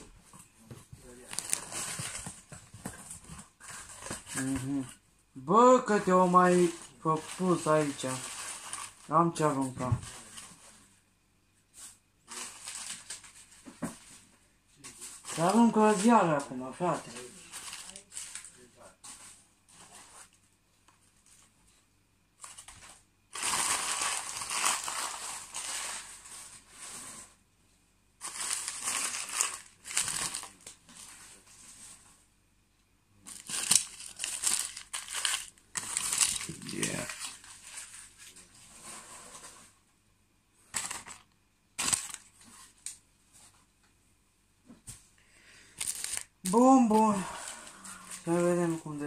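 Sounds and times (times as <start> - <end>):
newspaper crumpling: 1.0 - 4.9, 5.5 - 10.8, 12.2 - 14.0, 14.9 - 20.4, 22.4 - 27.2, 28.2 - 31.8, 33.2 - 39.6, 40.7 - 42.8, 45.7 - 49.0
paper rustle: 1.0 - 5.0, 5.6 - 10.9, 11.8 - 20.4, 22.4 - 27.4, 28.2 - 32.2, 33.2 - 39.8, 40.7 - 43.6, 45.6 - 49.0.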